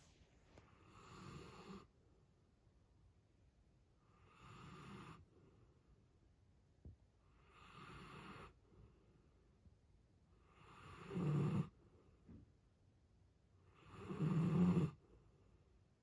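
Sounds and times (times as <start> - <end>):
dog snoring: 0.6 - 1.9, 4.0 - 5.3, 7.2 - 8.6, 10.4 - 11.8, 13.6 - 15.0.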